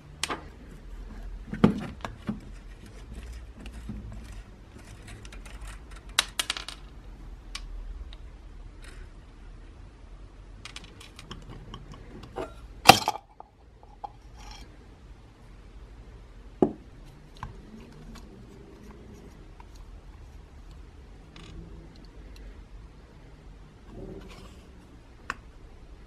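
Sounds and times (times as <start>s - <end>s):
small parts clicking and clinking: 3.2s - 7.7s, 10.6s - 14.7s.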